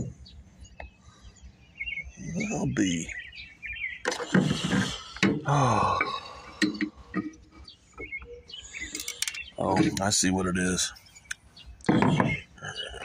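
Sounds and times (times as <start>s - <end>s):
engine parts clicking: 4.0s - 10.3s
man mumbling and grunting: 4.4s - 6.6s, 12.5s - 13.0s.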